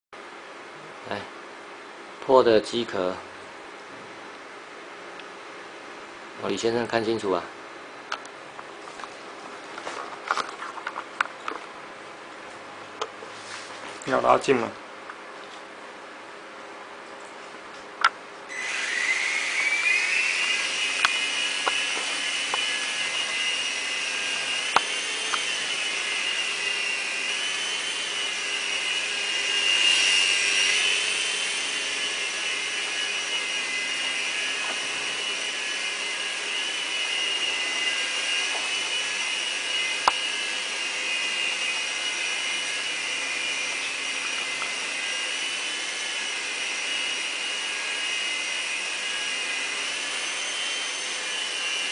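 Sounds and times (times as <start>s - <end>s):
toy helicopter motor whine: 18.5s - 51.9s.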